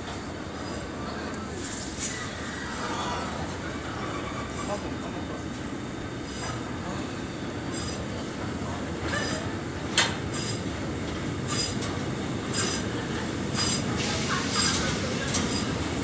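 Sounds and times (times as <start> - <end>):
steel wheels rumbling on rail: 0.0 - 16.0.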